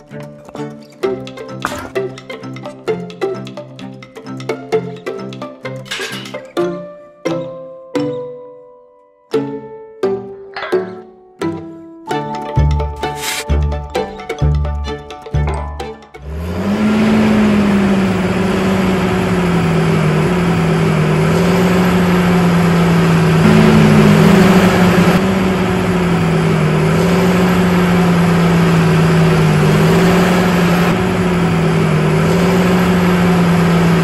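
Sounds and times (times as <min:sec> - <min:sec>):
music: 0:00.0 - 0:16.4.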